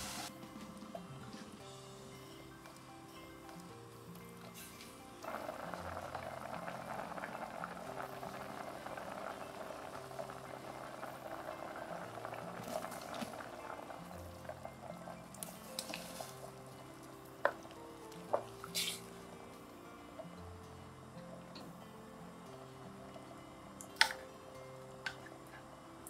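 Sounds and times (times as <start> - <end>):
stew bubbling in a pot: 5.2 - 19.3.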